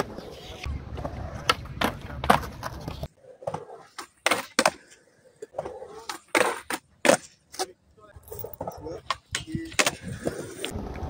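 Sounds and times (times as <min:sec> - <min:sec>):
skateboard clacks: 0:00.0 - 0:07.7
skateboard rolling on concrete: 0:00.0 - 0:11.0.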